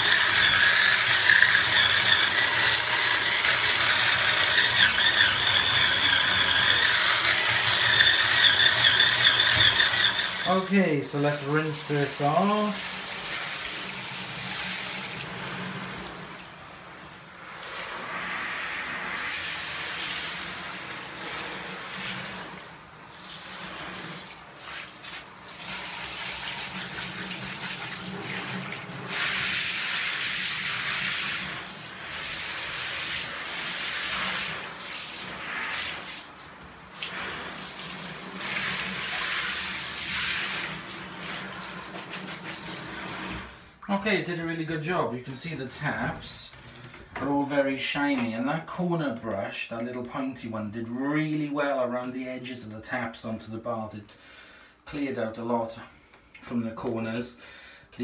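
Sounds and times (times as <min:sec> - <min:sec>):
shower spray drumming on tub: 0:00.0 - 0:43.6
water running down drain: 0:00.0 - 0:43.6.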